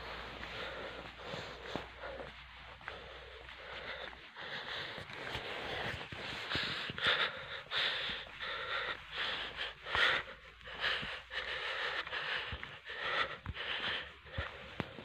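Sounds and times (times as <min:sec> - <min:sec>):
person breathing hard: 0:00.0 - 0:15.0.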